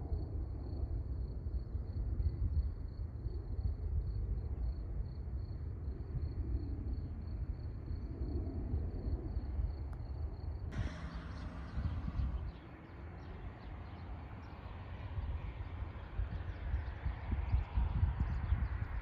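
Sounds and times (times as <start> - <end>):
low rumble: 10.7 - 19.0.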